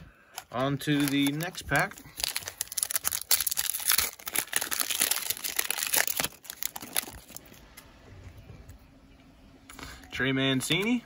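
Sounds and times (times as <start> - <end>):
foil wrapper crinkling: 0.3 - 7.6.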